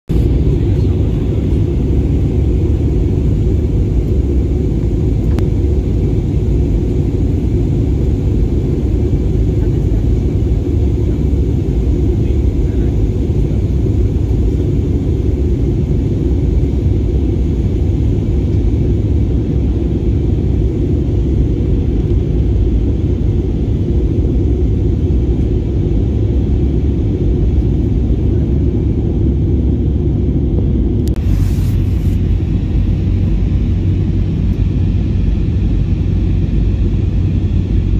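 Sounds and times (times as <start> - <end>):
airliner cabin engine rumble: 0.1 - 37.9.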